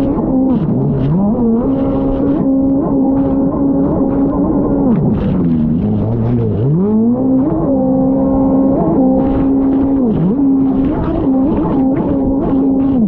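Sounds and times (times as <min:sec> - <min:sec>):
jet ski engine revving: 0:00.0 - 0:13.0.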